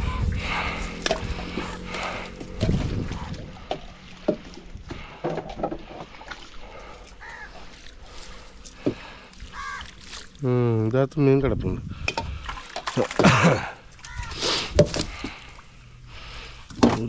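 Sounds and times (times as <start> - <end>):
light water sounds: 0.0 - 11.0, 11.9 - 16.8
crow cawing: 6.8 - 7.8, 8.8 - 10.0, 14.0 - 14.5.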